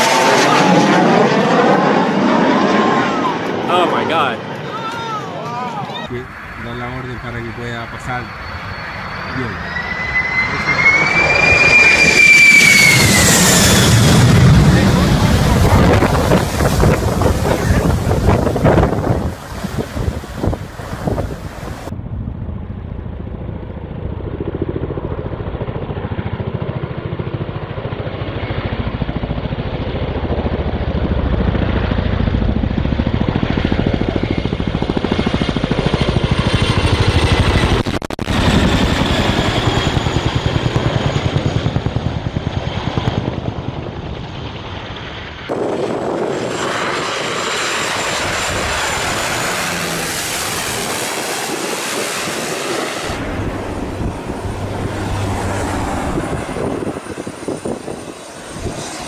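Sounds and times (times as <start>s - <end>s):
helicopter rotor chop: 0.0s - 59.0s
propeller plane drone: 0.0s - 59.0s
deep engine rumble: 5.2s - 26.1s, 45.4s - 59.0s.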